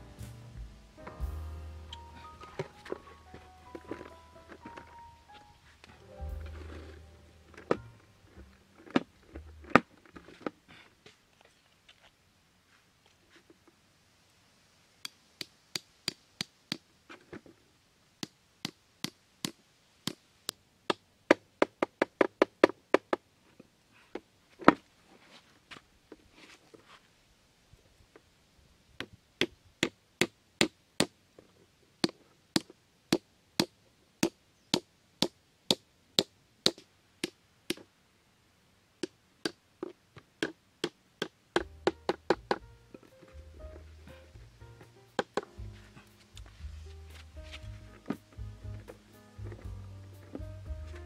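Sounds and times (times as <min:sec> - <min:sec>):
hatchet knocking wooden stake: 0:32.0 - 0:37.8.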